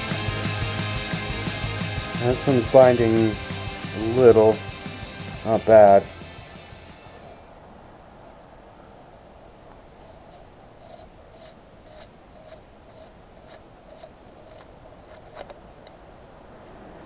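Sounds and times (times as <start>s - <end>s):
piston scraping in cylinder: 10.0s - 15.6s.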